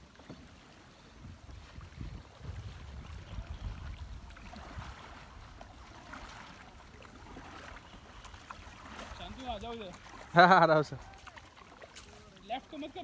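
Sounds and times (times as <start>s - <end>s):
paddles dipping in water: 0.0s - 13.0s
water trickling and lapping: 0.0s - 13.0s
wind rumble on microphone: 0.9s - 9.7s.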